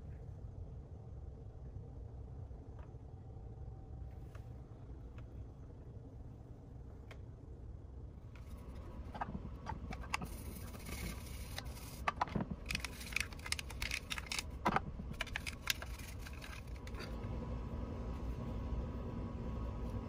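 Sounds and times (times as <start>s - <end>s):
toothbrush scrubbing plastic: 8.6s - 17.1s.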